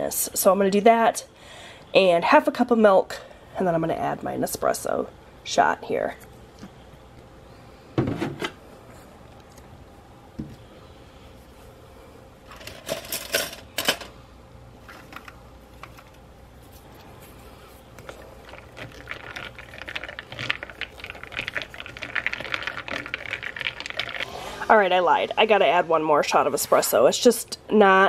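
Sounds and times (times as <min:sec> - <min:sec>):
ice cubes clinking in plastic cup: 0:18.0 - 0:24.3.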